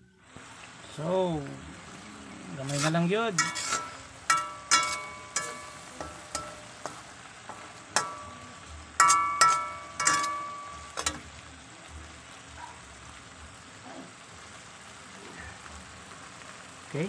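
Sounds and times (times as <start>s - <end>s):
food sizzling: 0.0s - 17.0s
metal spatula knocking wok: 2.7s - 11.3s.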